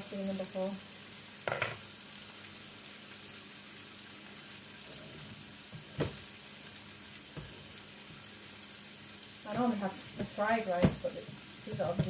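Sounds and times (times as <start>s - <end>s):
tofu sizzling in frying pan: 0.0s - 12.0s.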